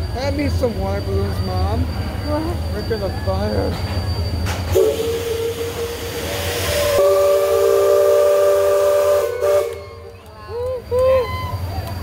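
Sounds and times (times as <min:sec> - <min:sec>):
hiss of escaping steam: 0:04.7 - 0:09.6
steam whistle: 0:04.7 - 0:10.2.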